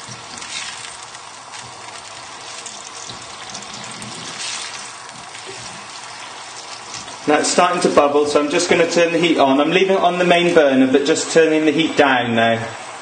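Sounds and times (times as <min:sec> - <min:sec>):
stock bubbling in a pan: 0:00.0 - 0:09.0
wooden spoon stirring: 0:00.0 - 0:09.4.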